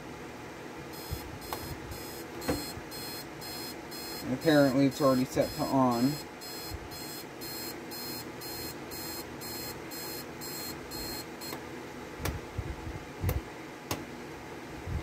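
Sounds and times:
alarm clock buzzer beeping: 1.0 - 11.3.

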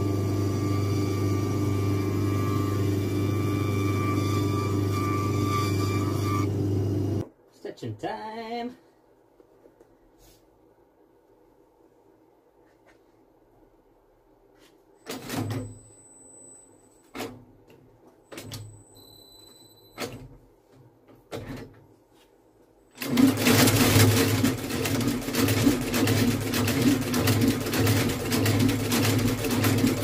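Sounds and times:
stitching machine running rhythmically: 23.0 - 30.0.

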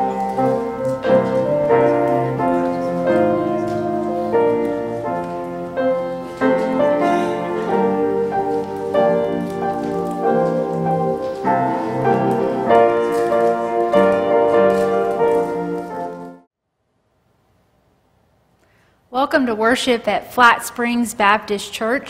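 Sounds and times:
piano music: 0.0 - 16.5.

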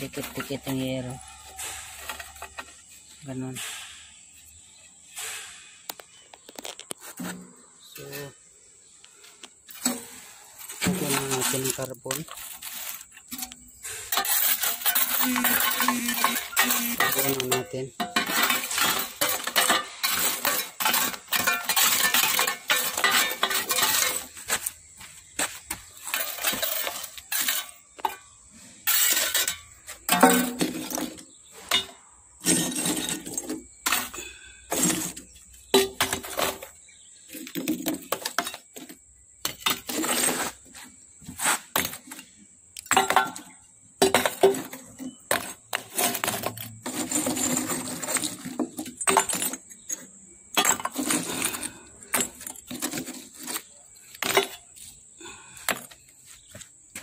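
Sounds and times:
carbon lumps clattering into metal box: 9.7 - 40.5, 42.9 - 54.6.

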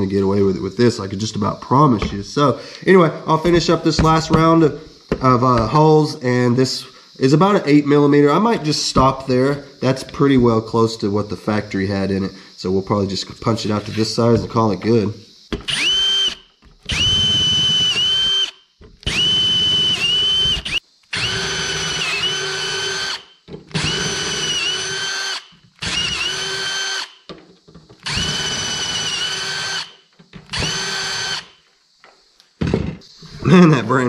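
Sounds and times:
cordless drill boring through steel: 3.4 - 6.2, 15.4 - 27.3, 28.0 - 31.6.

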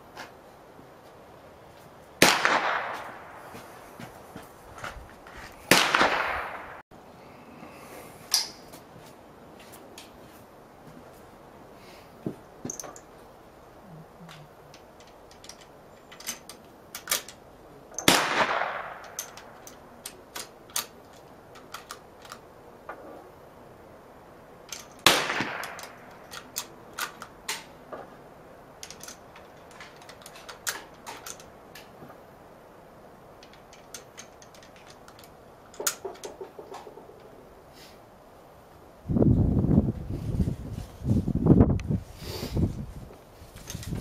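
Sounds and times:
gunshots with echo: 2.2 - 3.6, 5.7 - 6.8, 18.0 - 19.1, 25.0 - 26.1
rifle bolt clicks: 14.7 - 22.4, 24.7 - 27.7.

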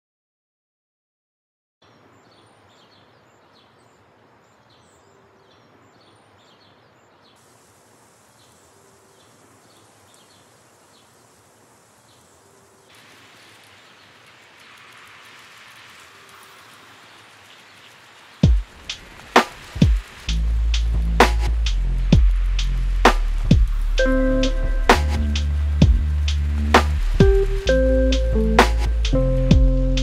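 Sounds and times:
faint steady hiss: 1.8 - 30.0
loud rushing hiss: 7.4 - 30.0.

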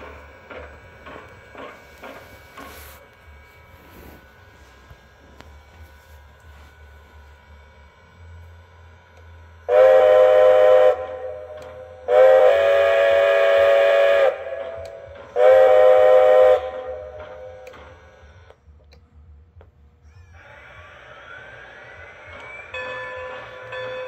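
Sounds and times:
chime steam whistle blasts: 9.7 - 17.6.

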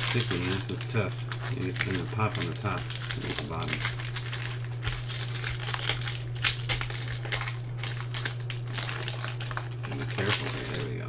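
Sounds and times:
foil wrapper crinkling: 0.0 - 11.0.

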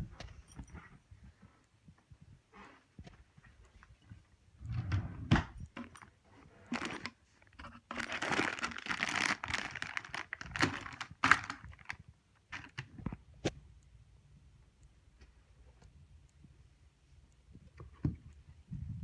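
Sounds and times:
clothes rustling in drawer: 4.7 - 12.9.

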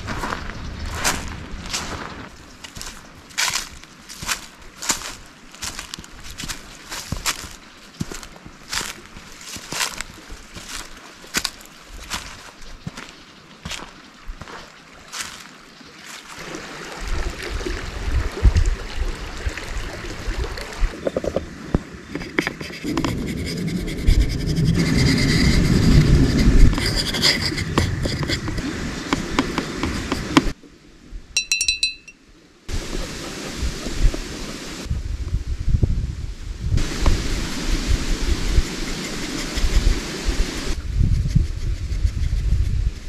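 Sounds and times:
wind on microphone: 0.0 - 4.4, 17.0 - 30.6, 32.7 - 43.0
brush knocking plastic palette: 22.2 - 24.6, 25.8 - 30.5
paintbrush working paint: 22.2 - 30.6, 38.2 - 43.0.

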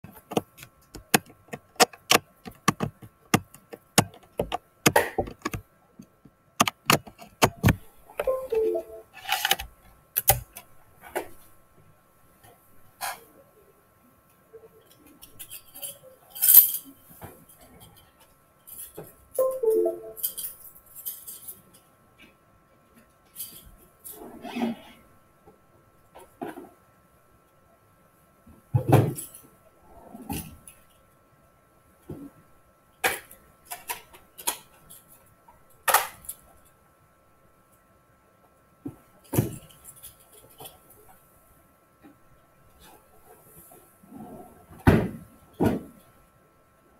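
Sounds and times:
irregular clicks and knocks: 0.1 - 8.4
faint steady high tone: 8.2 - 9.2, 19.4 - 20.5.

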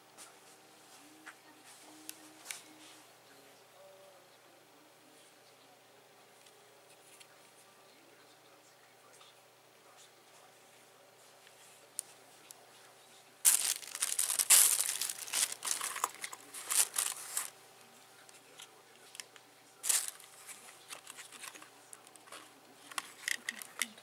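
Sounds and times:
rustling and clicking handling noise: 13.4 - 24.0.

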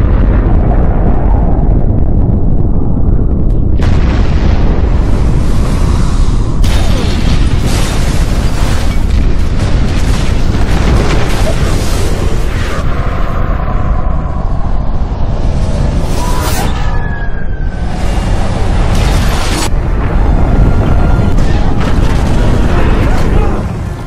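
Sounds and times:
explosion blast rumbling roar: 0.0 - 24.0.

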